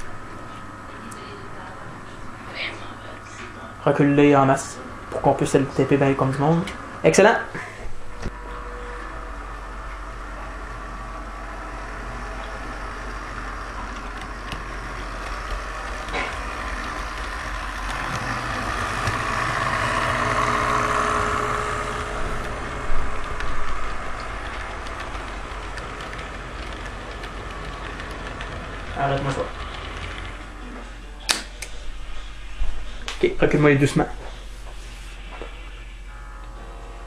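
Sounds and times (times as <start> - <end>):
toy train rolling on track: 9.8 - 30.6.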